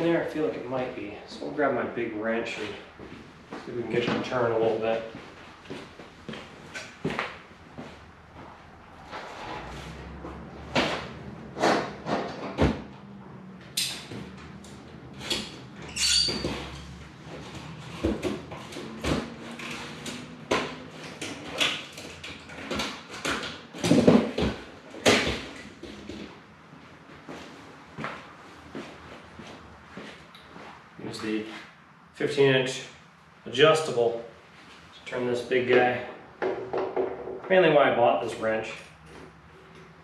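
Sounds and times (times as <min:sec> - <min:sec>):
metal tools clanking: 0:13.8 - 0:16.9
ringing metal clink: 0:15.9 - 0:16.4.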